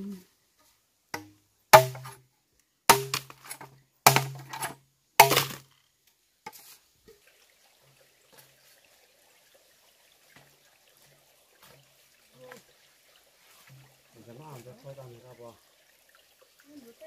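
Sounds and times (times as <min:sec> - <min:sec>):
strikes on hollow bamboo: 0:01.1 - 0:02.2, 0:02.9 - 0:05.7.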